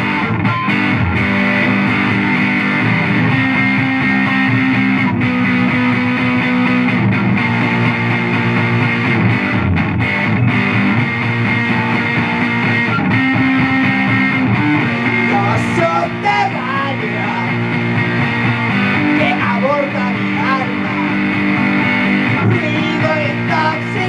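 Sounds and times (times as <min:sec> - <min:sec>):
electric guitar ringing chords: 0:00.0 - 0:24.0.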